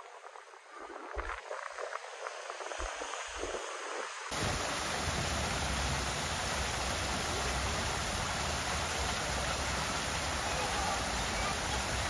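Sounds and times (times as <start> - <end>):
soft hiss: 0.0 - 12.0
waterfall splashing: 4.3 - 12.0.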